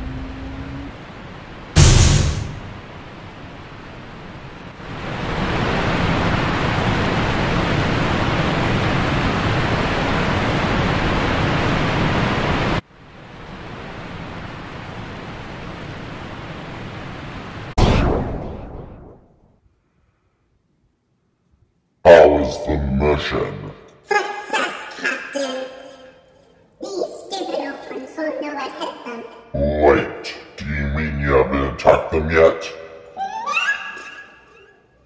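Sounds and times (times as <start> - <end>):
rushing noise: 0.0 - 3.3.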